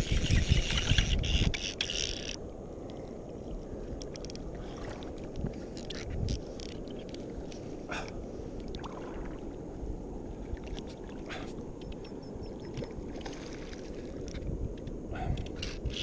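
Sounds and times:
shallow water sloshing and lapping: 0.0 - 16.0
small splashes and crackles: 8.6 - 9.6, 10.4 - 12.0, 12.6 - 14.6.

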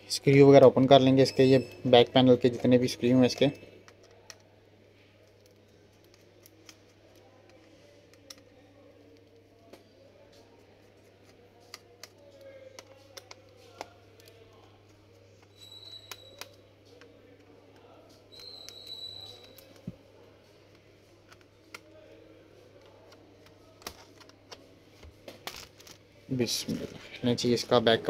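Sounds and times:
short high squeaks: 15.5 - 16.4.

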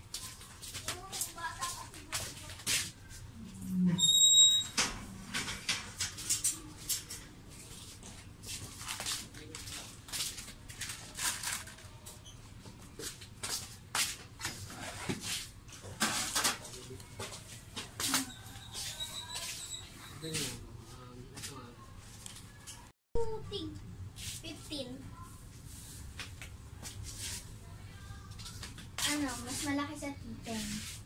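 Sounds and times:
short high squeak: 4.0 - 4.8, 18.2 - 20.4.

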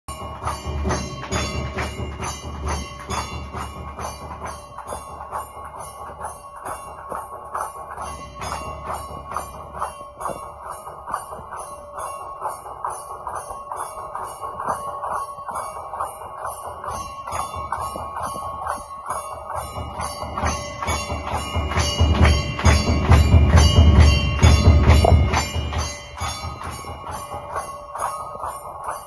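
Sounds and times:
deep heavy beat: 0.1 - 5.1, 19.6 - 27.7
bells struck rapidly: 0.1 - 29.0
steady ringing tone: 0.1 - 29.0.

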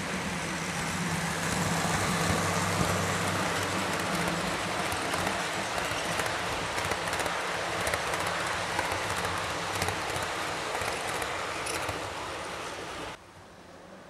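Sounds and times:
model train rolling on track: 0.0 - 13.2
wheel clicks: 2.8 - 12.0.

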